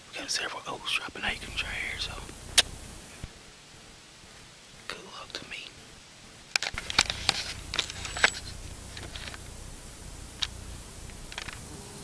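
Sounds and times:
low rumble: 1.2s - 3.3s, 6.7s - 12.0s.

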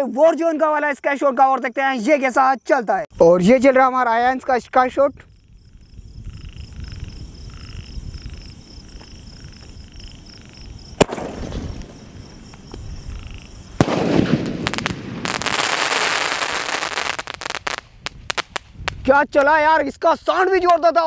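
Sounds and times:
firework hiss climbing: 5.2s - 19.1s
dense firework crackle: 10.2s - 19.6s
firework burst: 10.9s - 12.5s, 13.7s - 18.7s
firework launch bang: 11.0s - 12.4s, 13.8s - 17.6s.

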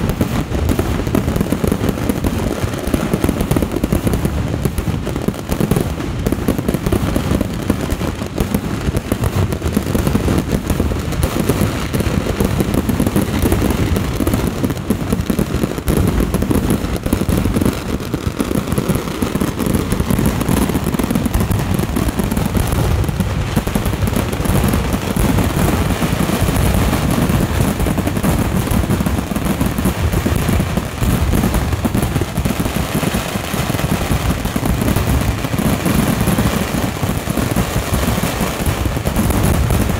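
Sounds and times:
fireworks barrage: 0.0s - 39.9s.

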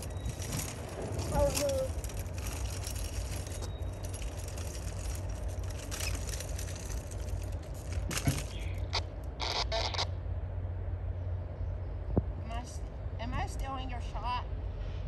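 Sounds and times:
short rustling: 0.0s - 8.9s
distant locomotive rumble: 0.0s - 15.0s.

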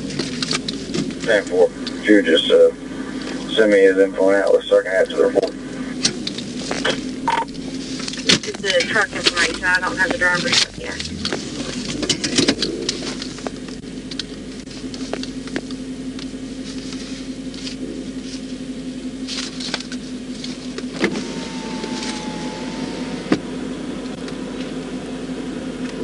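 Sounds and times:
vehicle engine idling: 0.0s - 26.0s.

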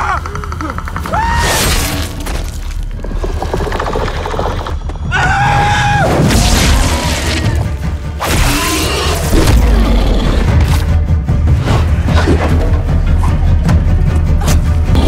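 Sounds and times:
dramatic orchestral score: 4.7s - 15.0s.

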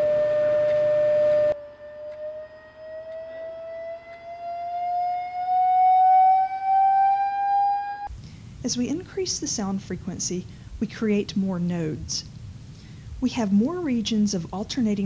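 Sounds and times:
electronic test tone rising in pitch: 0.0s - 8.1s.

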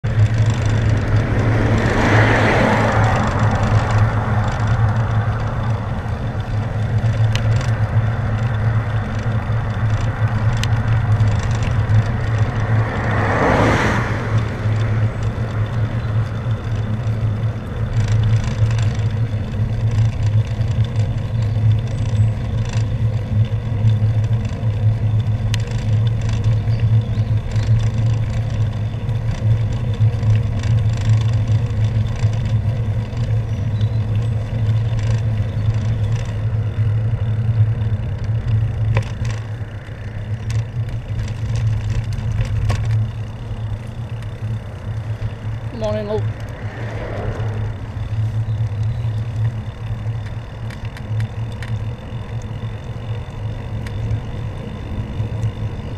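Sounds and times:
car passing: 0.0s - 20.3s, 34.0s - 55.9s
bicycle road noise: 0.0s - 55.9s.

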